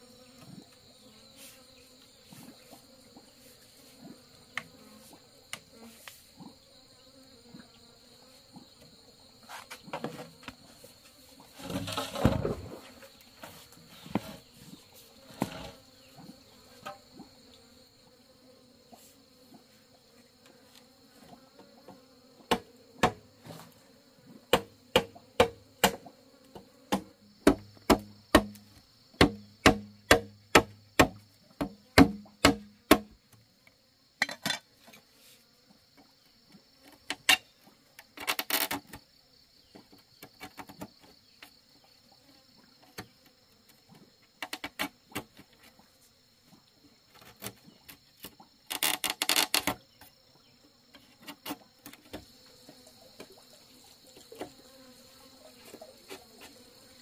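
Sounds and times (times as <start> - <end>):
insect buzz: 0.0 - 57.0
machete chopping bamboo: 22.5 - 23.2, 24.5 - 26.0, 26.9 - 28.6, 29.2 - 33.2.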